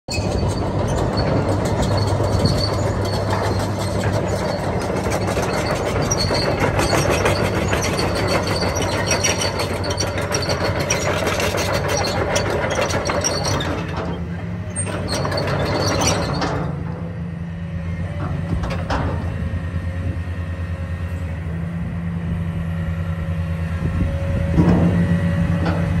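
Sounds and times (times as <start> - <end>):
track chains clanking and squeaking: 0.1 - 17.2
diesel engine running: 0.1 - 26.0.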